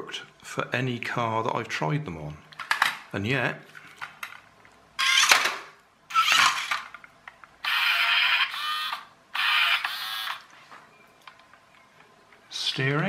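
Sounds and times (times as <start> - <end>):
toy car motor whirring: 5.0 - 5.5, 6.1 - 6.9, 7.6 - 10.5.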